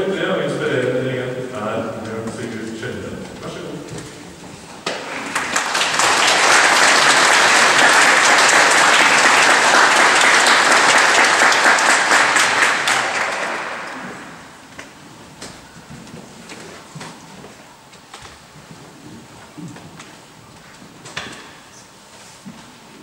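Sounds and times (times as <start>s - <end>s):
audience applauding: 4.8s - 14.8s.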